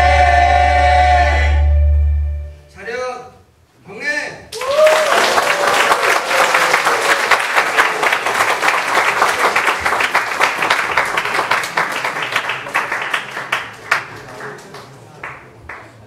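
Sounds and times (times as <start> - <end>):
audience applauding: 4.5 - 16.0.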